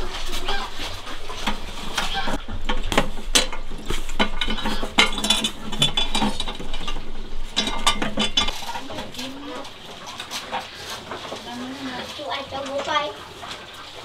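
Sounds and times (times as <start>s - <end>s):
metallic clicks and rattles: 2.4s - 10.3s.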